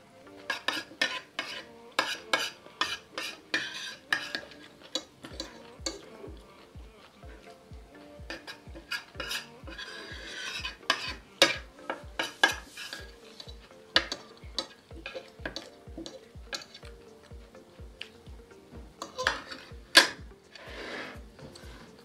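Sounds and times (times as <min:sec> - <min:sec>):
background music with steady beat: 0:00.0 - 0:22.0
cutlery clinking on a plate: 0:00.4 - 0:06.1, 0:08.3 - 0:17.4, 0:19.0 - 0:20.2.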